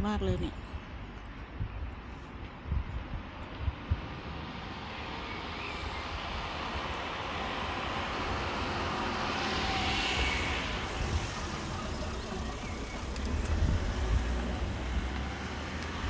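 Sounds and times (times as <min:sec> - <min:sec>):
low traffic rumbles: 0:00.0 - 0:16.0
vehicle passing: 0:03.7 - 0:16.0.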